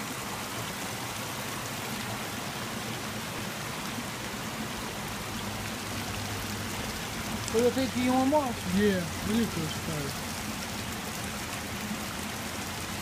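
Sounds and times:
water rushing through channel: 0.0s - 13.0s.

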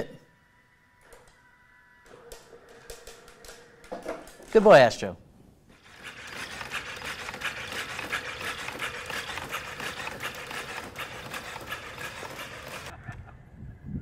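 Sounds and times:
robot motor whine: 5.7s - 12.9s
rapid mechanical clicking: 5.7s - 13.0s.

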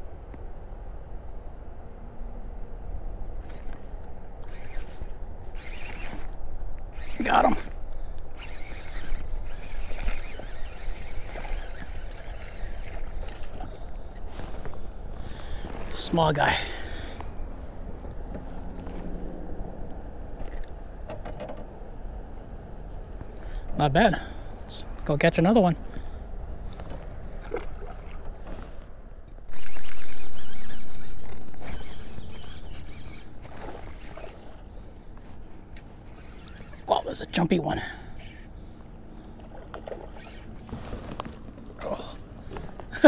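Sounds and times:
faint water and wind: 0.0s - 43.0s
faint clicks of fishing reel: 3.4s - 16.0s, 29.5s - 37.5s
water splashes: 27.3s - 28.4s, 31.3s - 34.9s, 39.2s - 42.7s.

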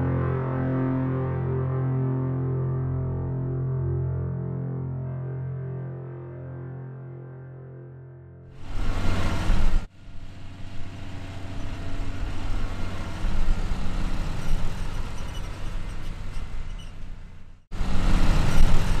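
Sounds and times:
vehicle engine humming: 8.6s - 19.0s.

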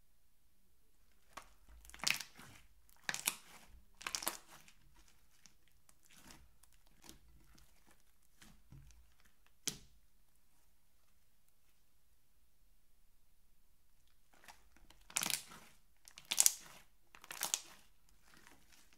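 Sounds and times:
slime squishing: 1.0s - 10.0s, 14.0s - 18.9s
slime crackling and popping: 1.2s - 9.8s, 14.3s - 18.9s.

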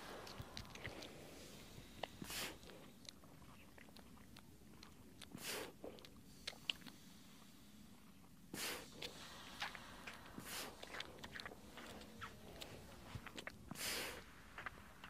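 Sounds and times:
seal breathy snorts: 0.0s - 3.0s, 5.4s - 7.3s, 8.6s - 14.5s
seal wet clicks and snuffles: 0.0s - 15.0s.

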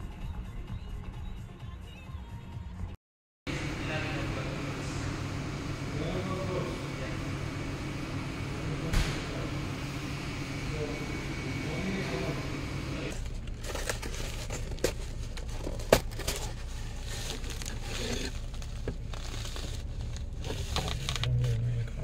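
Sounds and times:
cardboard crinkling and rustling: 13.1s - 21.7s.

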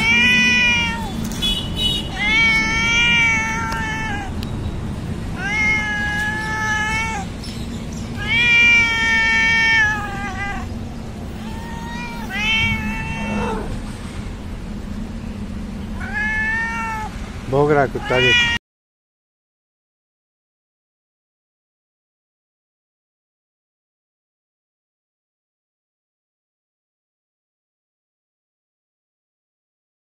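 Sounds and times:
cat meowing: 0.0s - 1.4s, 2.0s - 4.5s, 5.3s - 7.5s, 8.1s - 13.9s, 16.0s - 17.2s, 17.9s - 18.6s.

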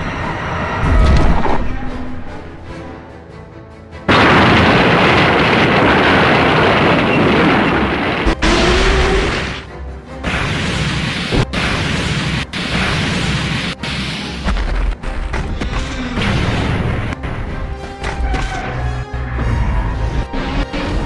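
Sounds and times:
soundtrack music: 0.0s - 5.8s, 7.9s - 21.0s
loud noisy blast: 4.1s - 14.7s.

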